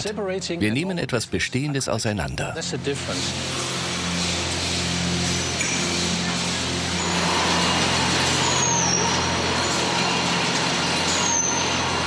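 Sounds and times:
machinery humming: 0.0s - 12.0s
high metallic squeals: 3.4s - 12.0s.

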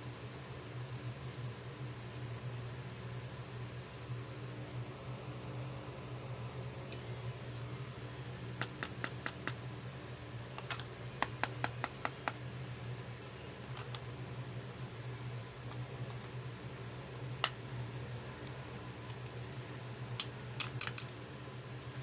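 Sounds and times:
plastic case clicking: 10.6s - 12.0s.

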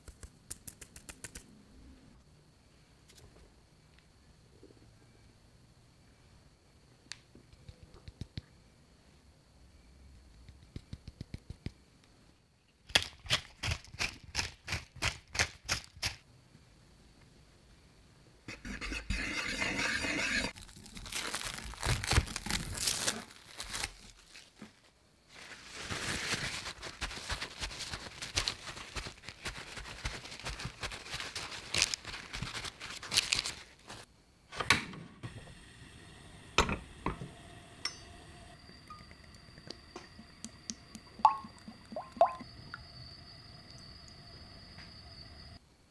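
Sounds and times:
paper towel crinkling: 20.6s - 34.1s.

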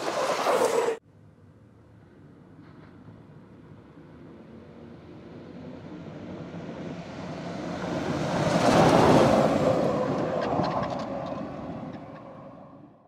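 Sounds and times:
electric buggy rushing past: 0.0s - 1.0s.

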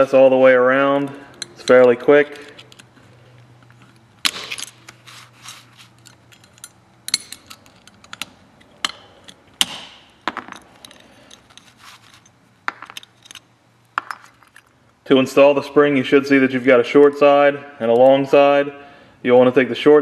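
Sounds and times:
metal pick clicking and scraping: 1.3s - 9.8s, 10.5s - 14.7s.

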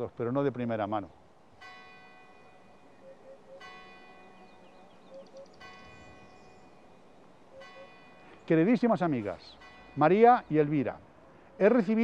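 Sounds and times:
faint bell-like tone ringing: 2.4s - 8.3s.

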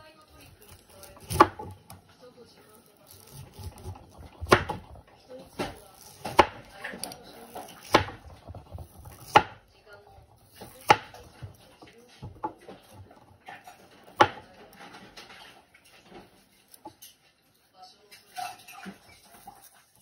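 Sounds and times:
knife chopping on cutting board: 0.6s - 2.0s, 3.0s - 9.7s, 10.4s - 15.0s.

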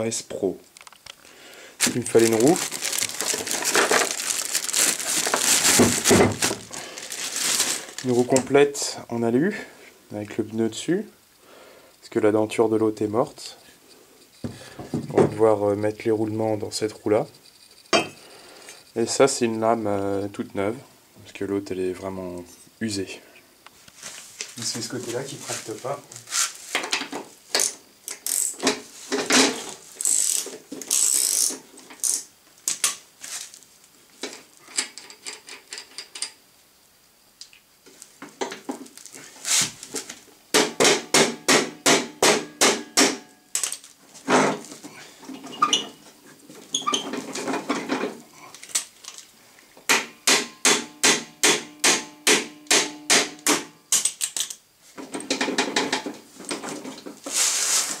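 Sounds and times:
sharp metallic clicks of hand tool: 49.9s - 54.6s.

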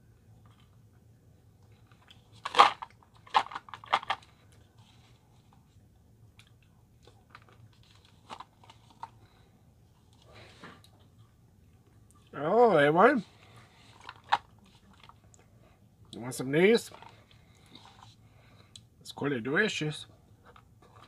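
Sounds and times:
packaging rustling: 1.9s - 5.0s.

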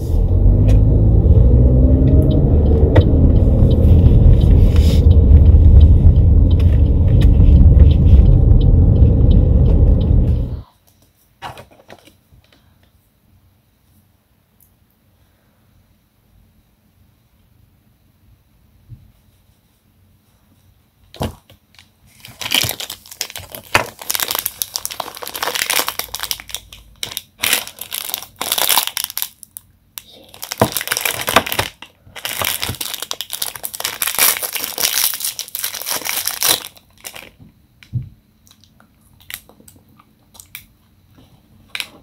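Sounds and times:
plastic wrappers crinkling: 21.7s - 37.4s, 38.5s - 40.7s.

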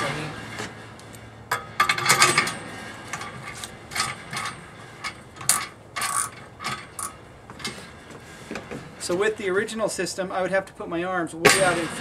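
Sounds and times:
drill chuck ratcheting: 5.4s - 7.2s.

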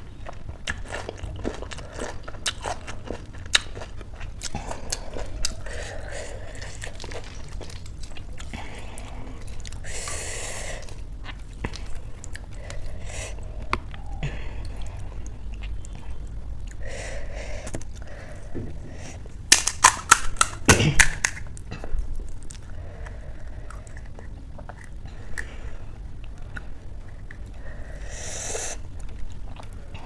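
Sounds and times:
crisp shells cracking: 5.2s - 8.4s, 19.5s - 21.6s.

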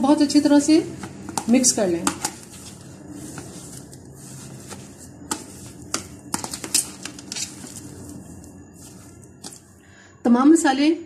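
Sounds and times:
spoon stirring mashed potato: 0.8s - 9.8s
spoon tapping plastic tub: 1.0s - 2.8s, 4.7s - 7.8s.

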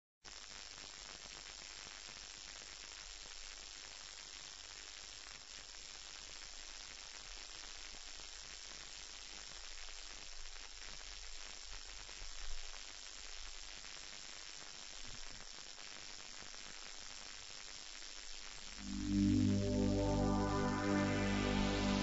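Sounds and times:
recording hiss: 0.3s - 22.0s
low mains hum: 18.2s - 22.0s
thin high whine: 18.6s - 22.0s.

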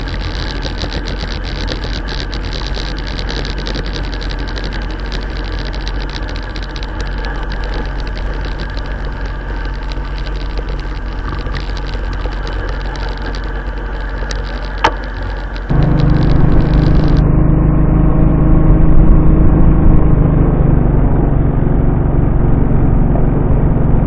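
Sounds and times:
fast small ticks: 0.0s - 17.2s
motorcycle engine running: 0.0s - 24.0s.

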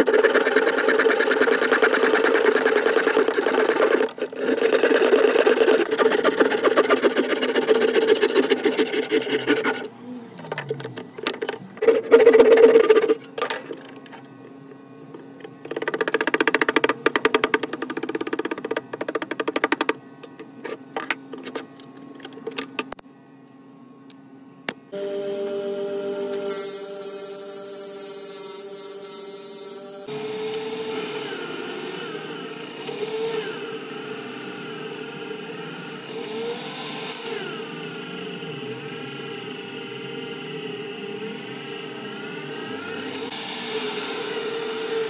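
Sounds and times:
rasp strokes on wood: 0.0s - 9.9s.

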